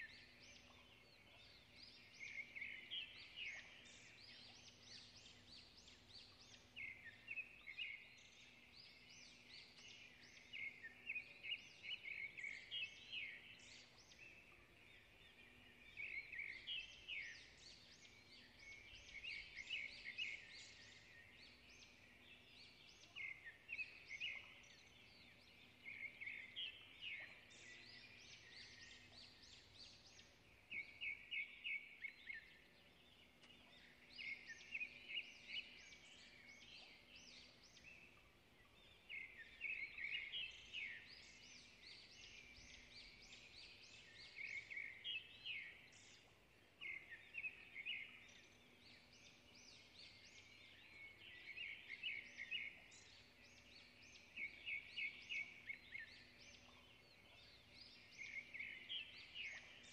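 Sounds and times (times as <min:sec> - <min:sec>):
bird chirping: 0:00.0 - 0:59.9.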